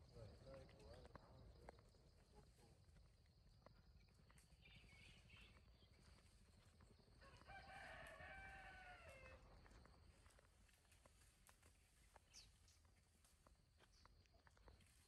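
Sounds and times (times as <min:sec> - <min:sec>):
rooster crowing: 0:07.2 - 0:09.4.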